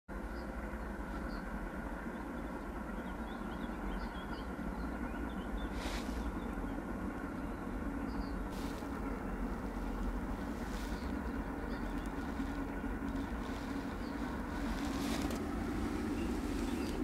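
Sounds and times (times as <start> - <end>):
steady low rumble: 0.1 - 17.0
rustling hiss: 5.6 - 6.4, 8.4 - 17.0
bird chirps: 9.6 - 17.0.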